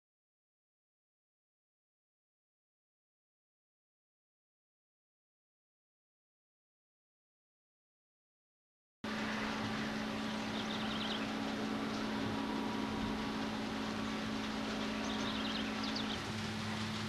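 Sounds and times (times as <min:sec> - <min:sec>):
distant locomotive engine hum: 0:09.0 - 0:17.0.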